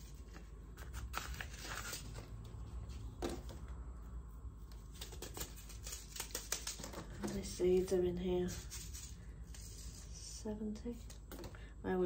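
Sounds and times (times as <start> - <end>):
paper packets rustling and clicking: 0.0 - 3.6, 4.8 - 7.9.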